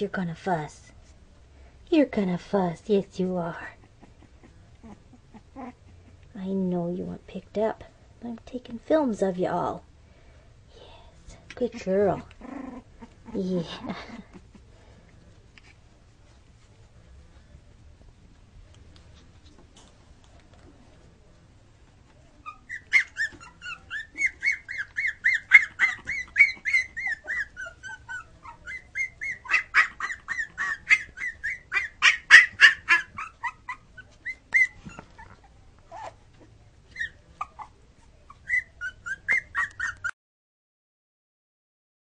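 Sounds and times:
puppy crying in squeals: 22.4s - 36.2s, 36.9s - 40.1s.

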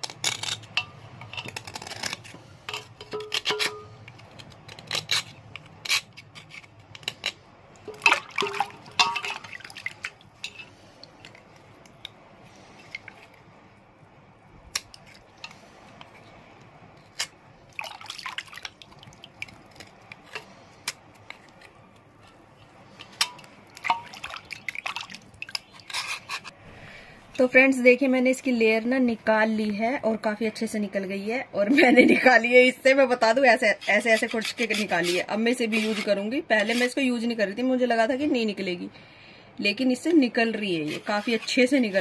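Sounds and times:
knife scraping stone: 0.0s - 7.4s, 25.5s - 26.6s, 33.7s - 37.0s, 40.8s - 42.0s
water dripping and splashing: 7.8s - 10.5s, 17.7s - 20.0s, 23.2s - 25.6s.

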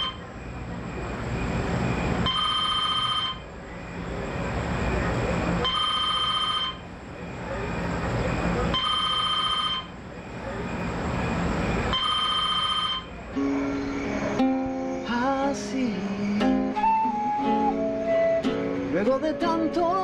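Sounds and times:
telephone ringing: 2.2s - 3.4s, 5.6s - 6.8s, 8.7s - 9.9s, 11.9s - 13.5s
acoustic guitar picking melody: 13.3s - 20.0s.

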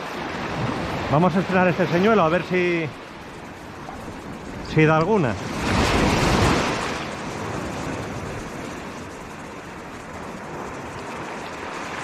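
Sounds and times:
wash of surf: 0.0s - 12.0s
wave splashing on rocks: 0.0s - 12.0s.

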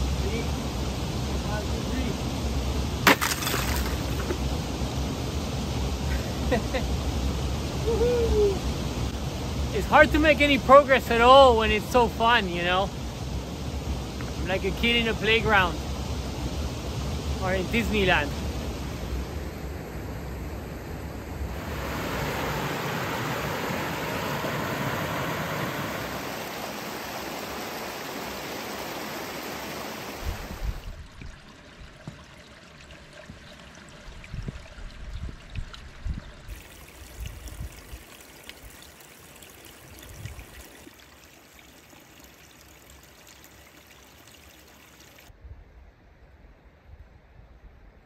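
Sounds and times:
stream rushing over rocks: 2.9s - 19.1s, 21.4s - 35.1s, 36.0s - 45.3s
water trickling: 3.1s - 4.5s, 21.5s - 45.3s.

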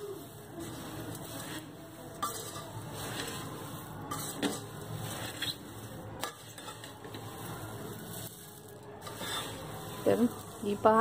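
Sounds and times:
puffed rice rustling: 0.0s - 11.0s.

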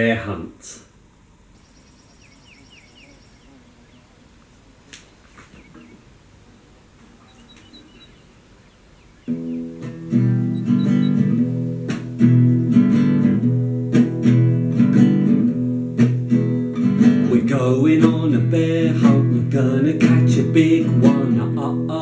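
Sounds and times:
acoustic guitar strumming chords: 9.3s - 22.0s.

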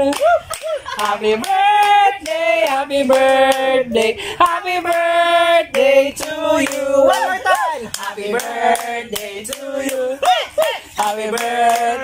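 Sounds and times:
people clapping in time: 0.0s - 4.2s, 4.8s - 12.0s
group singing long notes: 0.9s - 12.0s.

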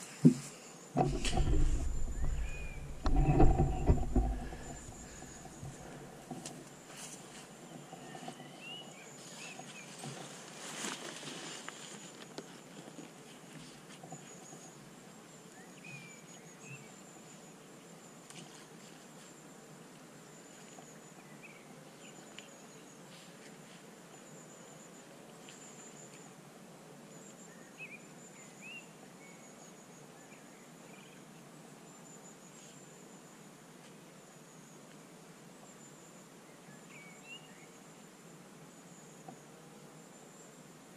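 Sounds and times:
bird chirps: 1.2s - 5.6s.

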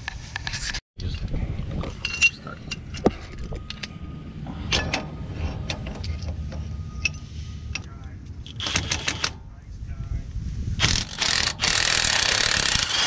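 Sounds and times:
wrenches clinking on metal: 2.0s - 3.9s, 10.8s - 13.0s.

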